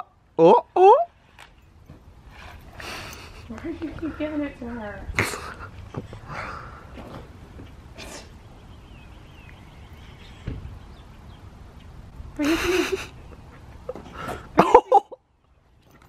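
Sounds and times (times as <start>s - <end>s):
faint outdoor background: 0.0s - 16.0s.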